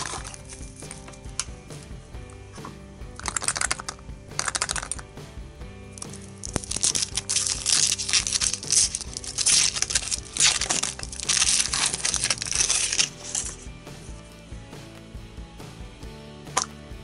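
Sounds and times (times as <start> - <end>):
foil wrapper crinkling: 0.0 - 1.1, 3.2 - 5.0, 6.0 - 13.6
light background music: 0.0 - 17.0.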